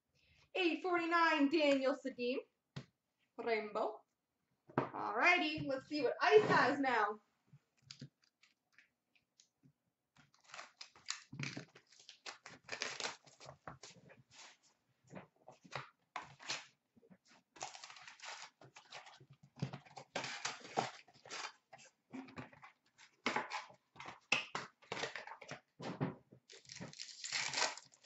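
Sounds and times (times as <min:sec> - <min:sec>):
packaging rustling and tearing: 0:07.8 - 0:08.8, 0:10.2 - 0:14.0, 0:17.6 - 0:19.2, 0:19.8 - 0:21.7, 0:26.5 - 0:28.0.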